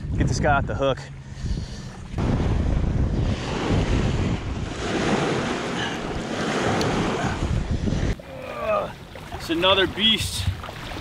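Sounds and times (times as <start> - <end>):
wind buffeting microphone: 0.0 - 8.2
small waves washing ashore: 2.1 - 11.0.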